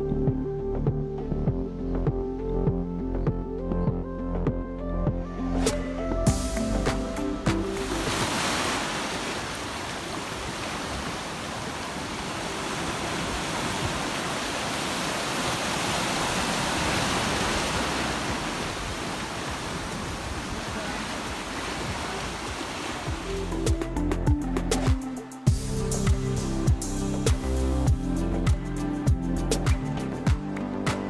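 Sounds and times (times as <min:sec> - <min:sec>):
surf washing over rocks: 0:07.4 - 0:23.4.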